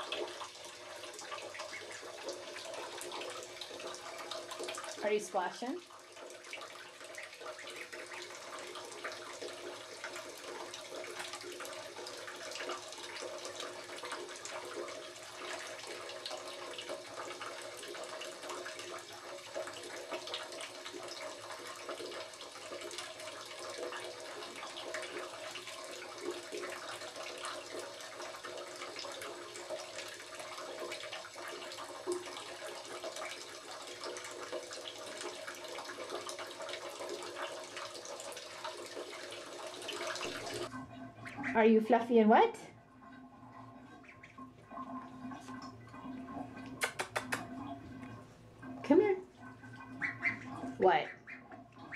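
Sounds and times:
water lapping against tub: 0.0 - 51.9
small water splashes: 43.8 - 51.9.

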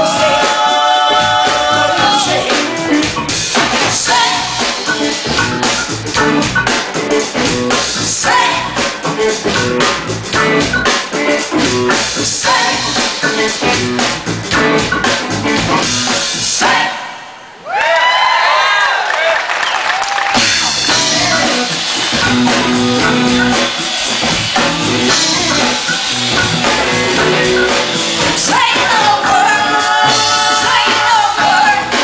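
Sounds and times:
person singing: 0.0 - 3.1, 24.6 - 32.0
guitar: 0.0 - 16.7, 20.4 - 32.0
drum kit: 0.0 - 17.2, 20.0 - 32.0.

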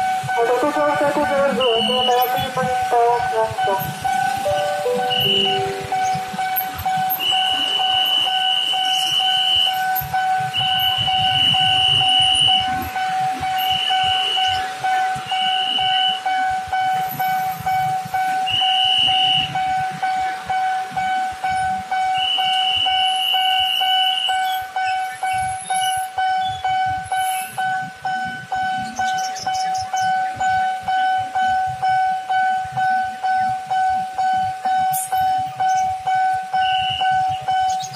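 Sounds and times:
level crossing alarm ringing: 0.0 - 37.9
higher-pitched tone: 0.5 - 6.6.

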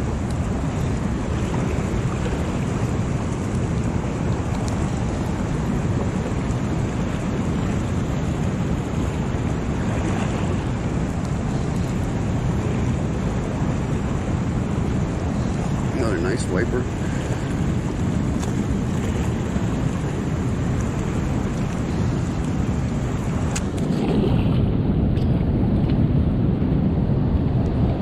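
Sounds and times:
rushing whitewater: 0.0 - 28.0.

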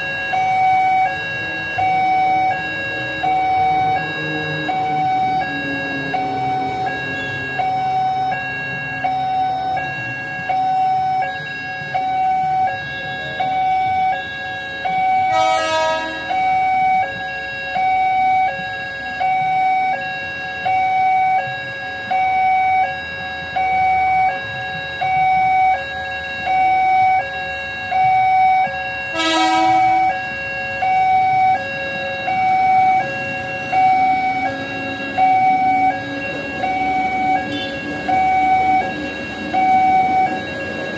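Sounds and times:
level crossing two-tone alarm: 0.0 - 40.9
road traffic: 0.0 - 40.9
short horn blasts: 15.3 - 16.3, 29.1 - 30.0.

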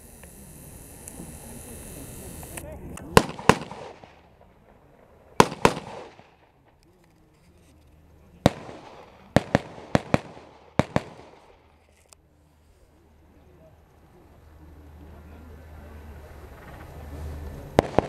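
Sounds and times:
rifle shots with echo: 3.0 - 6.8, 8.4 - 11.8, 17.8 - 18.0.

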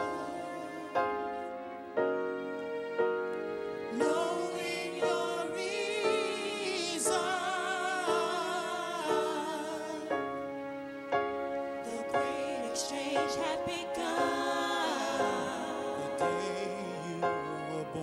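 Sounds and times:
person singing with vibrato: 0.0 - 1.7, 3.9 - 10.4, 11.8 - 18.0
sustained keyboard chords: 0.0 - 18.0.

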